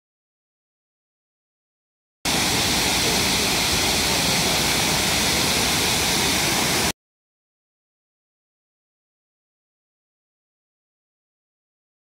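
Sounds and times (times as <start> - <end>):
waterfall rushing: 2.3 - 6.9.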